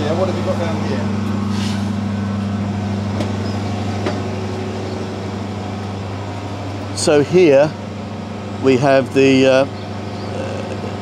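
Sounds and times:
diesel generator droning: 0.0 - 11.0.

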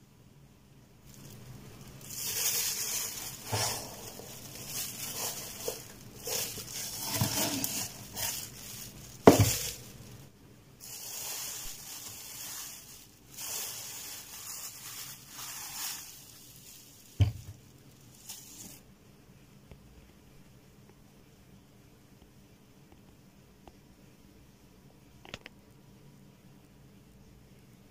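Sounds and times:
plastic bag crinkling: 1.0 - 18.8.

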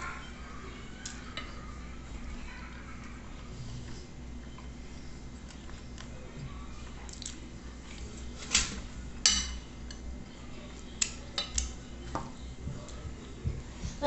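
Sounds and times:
person chewing: 7.0 - 7.5.

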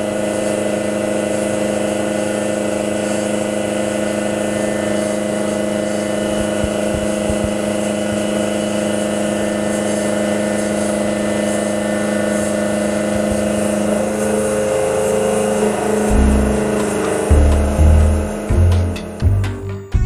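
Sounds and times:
coolant spray hiss: 0.0 - 19.4
milling machine cutting metal whine: 0.0 - 19.6
low thump: 16.1 - 18.2.

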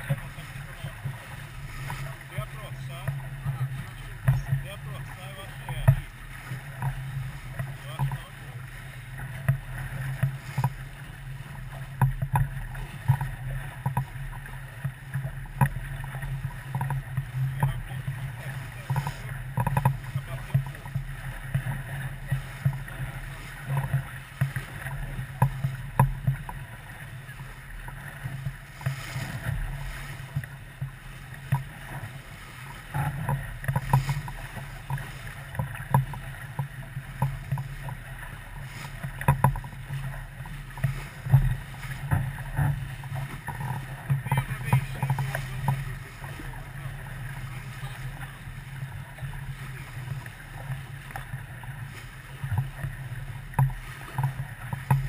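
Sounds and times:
boat engine rumble: 0.0 - 55.0
irregular knocks and taps: 12.0 - 12.5, 18.9 - 21.0, 25.4 - 26.6, 39.2 - 39.7.

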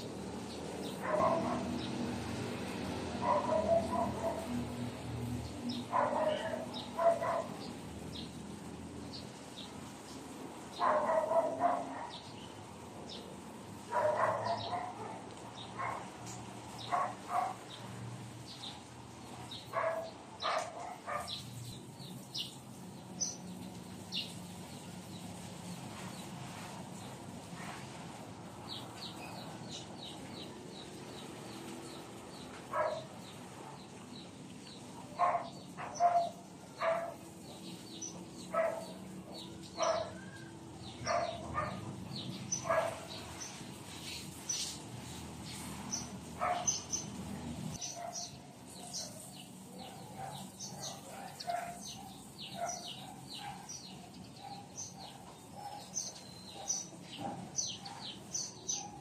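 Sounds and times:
birds chirping: 0.0 - 59.0
dog barking: 1.0 - 1.8, 3.2 - 4.6, 5.8 - 7.6, 10.8 - 12.3, 13.9 - 16.1, 16.8 - 17.6, 19.7 - 21.5, 32.7 - 33.1, 35.2 - 37.3, 38.4 - 41.9, 42.5 - 43.2, 46.4 - 46.9, 47.8 - 59.0.

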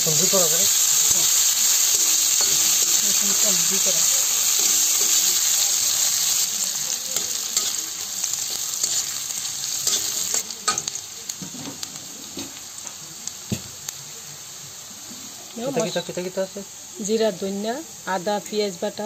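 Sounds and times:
onions sizzling in oil: 0.0 - 19.0
metal spatula scraping a pan: 2.1 - 5.6.

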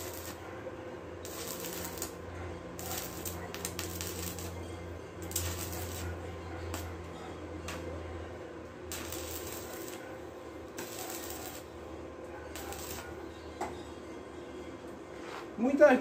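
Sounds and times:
welding arc crackling: 0.0 - 0.4, 1.2 - 4.6, 5.2 - 6.9, 8.9 - 11.7, 12.5 - 13.2.

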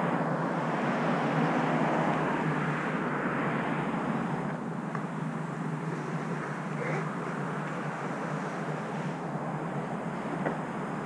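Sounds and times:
distant traffic rush: 0.0 - 11.0.

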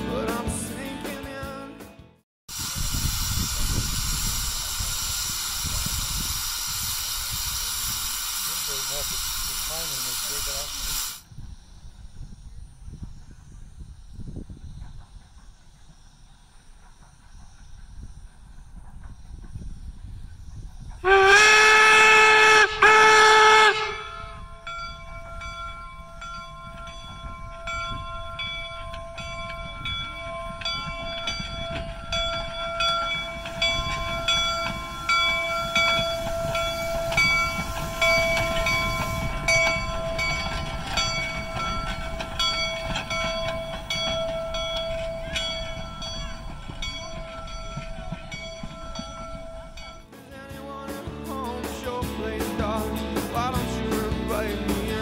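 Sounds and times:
steam locomotive whistle blasts: 2.5 - 11.2, 21.0 - 25.4, 27.2 - 50.0
steam engine running past: 2.5 - 50.1
locomotive bell ringing: 22.2 - 50.2.

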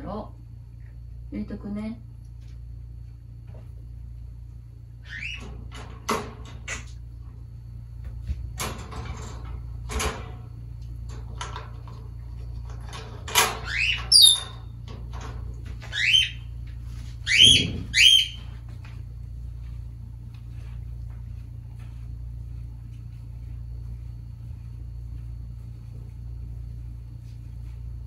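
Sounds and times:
parrot whistling: 13.7 - 14.5, 15.9 - 16.5, 17.2 - 18.4.

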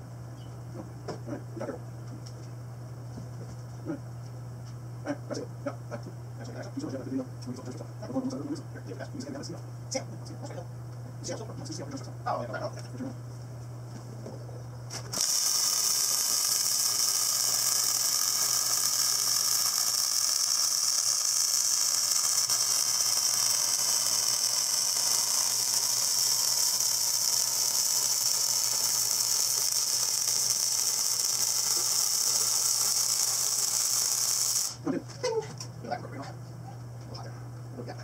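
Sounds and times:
low machine hum: 0.0 - 38.0
welding arc hissing: 15.0 - 34.9.

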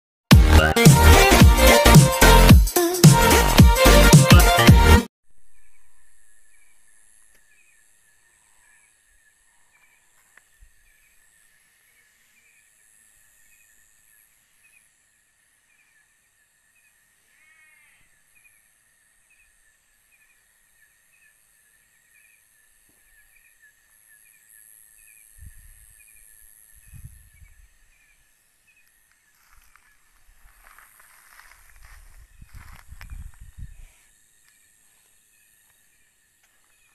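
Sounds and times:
cricket chirps: 5.4 - 36.9
insects trilling: 5.6 - 36.9
rustling footsteps: 29.1 - 34.1.

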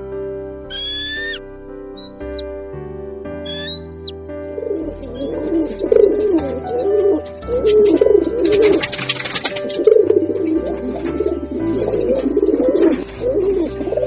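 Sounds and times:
soft background music: 0.0 - 14.0
hawk call: 0.7 - 1.4, 2.0 - 2.4, 3.5 - 4.1
pigeons cooing: 0.7 - 1.4, 3.5 - 14.0.

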